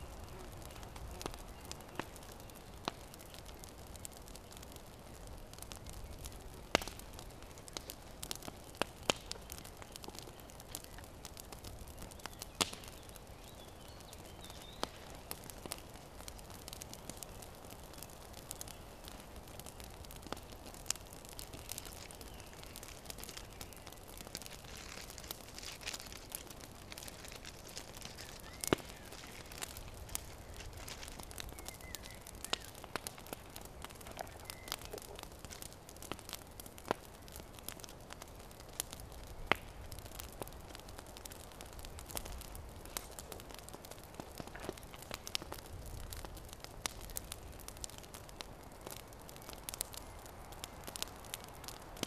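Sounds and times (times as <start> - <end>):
campfire embers crackling: 0.0 - 52.0
paper wrapping crinkling: 24.4 - 32.1.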